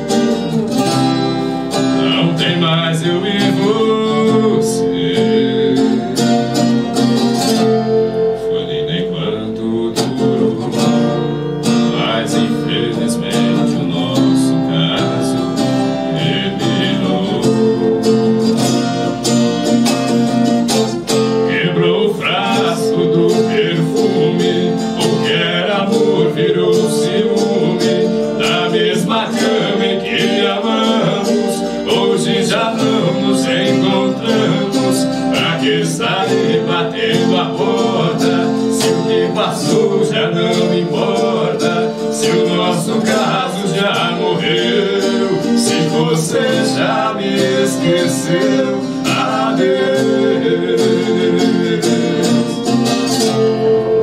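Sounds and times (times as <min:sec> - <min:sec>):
folk guitar playing: 0:00.0 - 0:54.0
two men singing in duet: 0:01.7 - 0:06.7, 0:08.3 - 0:19.0, 0:21.4 - 0:52.7.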